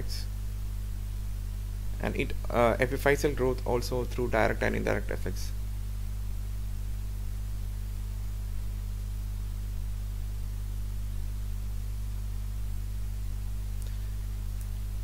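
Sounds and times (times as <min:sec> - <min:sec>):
electrical mains hum: 0:00.0 - 0:15.0
recording hiss: 0:00.0 - 0:15.0
faint clicks: 0:13.8 - 0:14.0.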